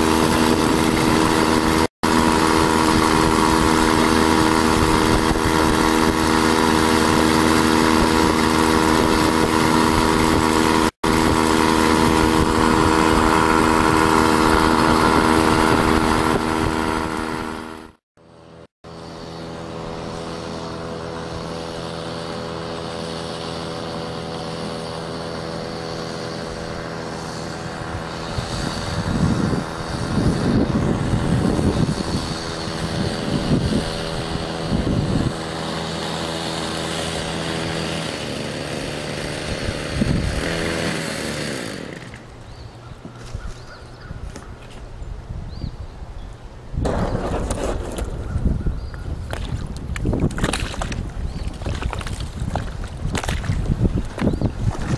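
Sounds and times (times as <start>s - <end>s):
two-stroke outboard motor: 0.0s - 44.8s, 46.9s - 54.9s.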